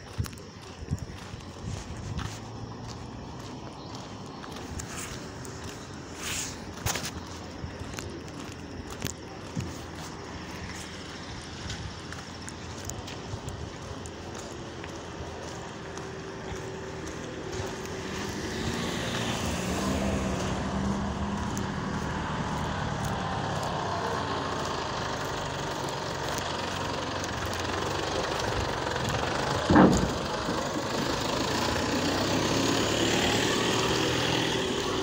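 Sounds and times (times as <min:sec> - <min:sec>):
vehicles passing slowly: 0:00.0 - 0:35.0
loud thump: 0:29.6 - 0:30.3.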